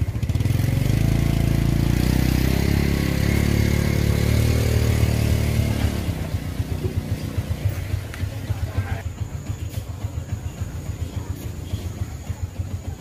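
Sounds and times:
motorbike engine running: 0.0 - 13.0.

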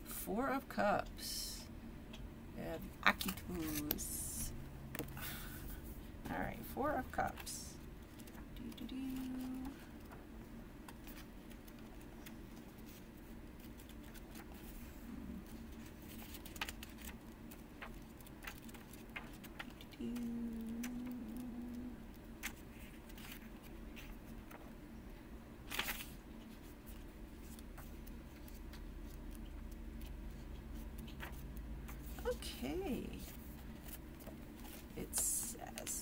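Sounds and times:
low hum: 0.0 - 35.9
paper pages rustling: 3.1 - 4.2, 7.2 - 10.2, 10.8 - 24.7, 25.7 - 36.0.

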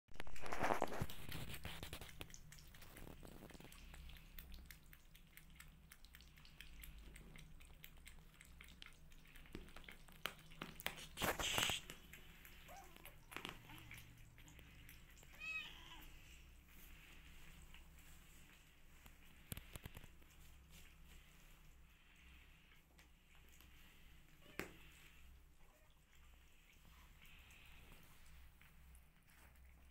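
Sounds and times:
kittens chewing and lapping food: 0.1 - 29.9
kitten mewing: 15.2 - 16.1.

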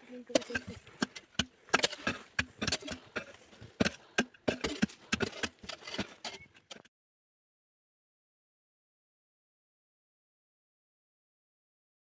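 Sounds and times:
pickaxe hacking into earth: 0.4 - 6.9.

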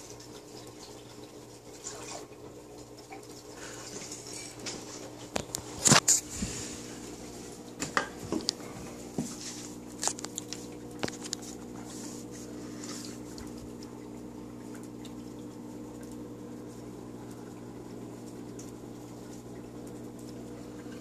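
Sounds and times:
aquarium equipment hum: 0.0 - 21.0
light water sounds: 0.0 - 21.0
sharp clicks or splashes: 9.9 - 11.4.

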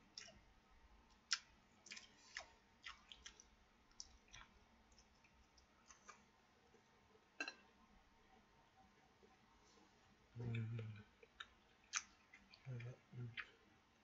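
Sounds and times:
person chewing: 1.3 - 6.2, 10.4 - 12.7.

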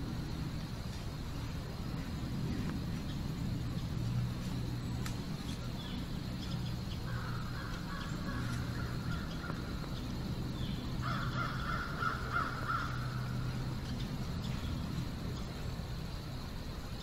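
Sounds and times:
steady low hum: 0.0 - 17.0
hoarse bird calls: 5.4 - 14.8.

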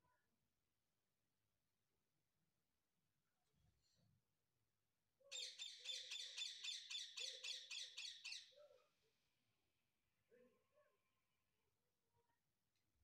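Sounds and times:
parakeet calling: 5.3 - 8.4.

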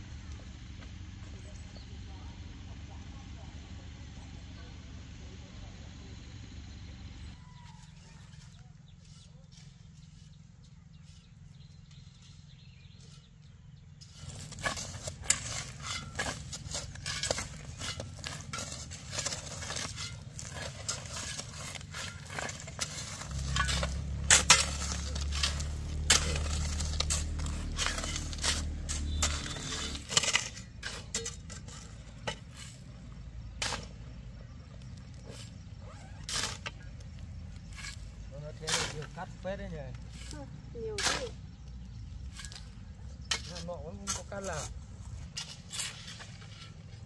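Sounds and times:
clattering of handled objects: 14.0 - 47.0.

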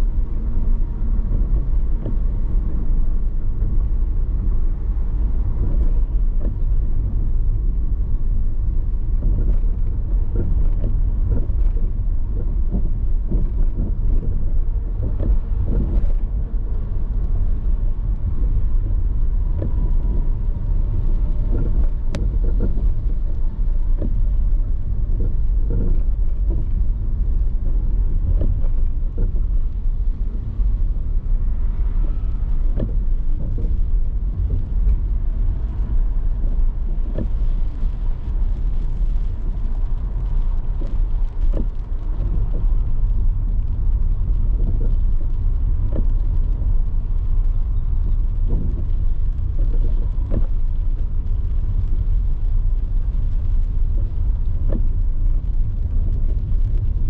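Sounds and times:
car road and engine rumble: 0.0 - 57.0.

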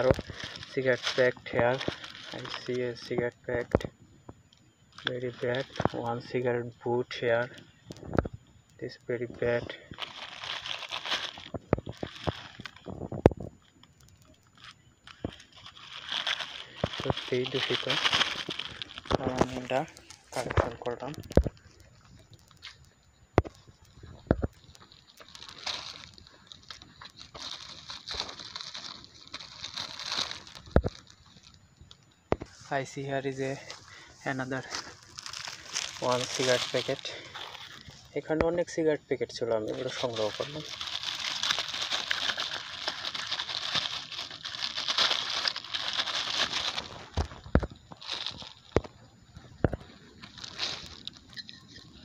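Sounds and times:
plastic bag crinkling: 0.0 - 3.9, 4.9 - 6.5, 8.8 - 38.4, 39.6 - 52.0.

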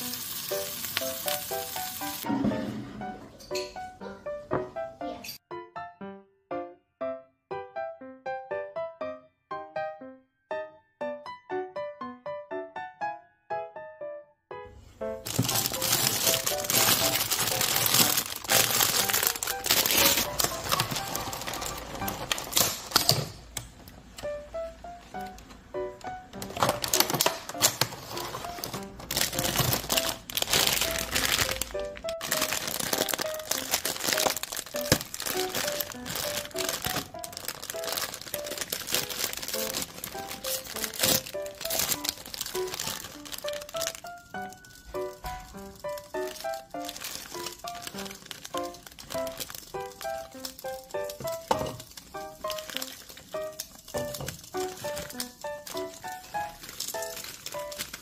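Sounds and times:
plastic packaging crinkling: 0.0 - 2.3, 15.2 - 23.4, 26.3 - 58.0
light background music: 0.0 - 9.0, 14.6 - 58.0.

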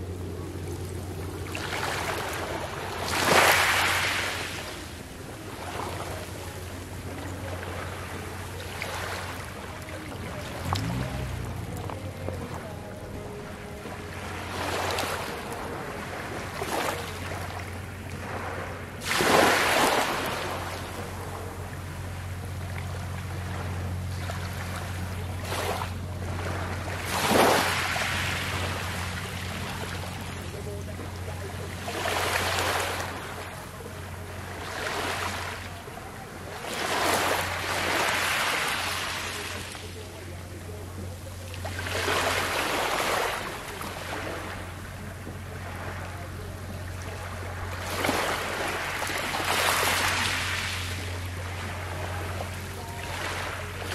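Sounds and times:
steady low hum: 0.0 - 53.9
small waves washing over pebbles: 1.4 - 4.8, 18.2 - 20.9, 24.2 - 30.4, 47.8 - 52.4.

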